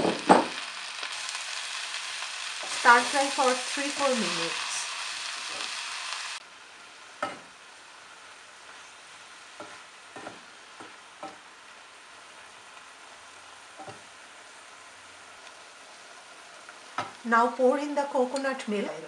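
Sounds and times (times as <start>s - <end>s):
mushrooms sizzling in oil: 0.0s - 19.0s
spatula tapping pan: 9.6s - 11.5s, 13.8s - 14.1s, 16.9s - 17.2s.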